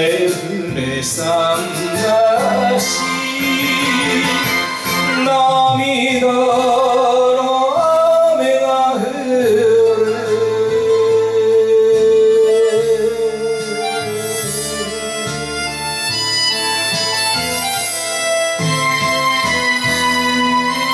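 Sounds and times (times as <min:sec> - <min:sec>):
man singing a ballad: 0:00.0 - 0:15.7
recorded backing track: 0:00.0 - 0:20.9.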